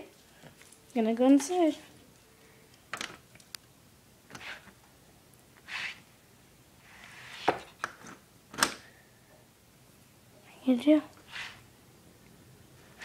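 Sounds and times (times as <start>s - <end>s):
scrapes: 11.2s - 11.7s.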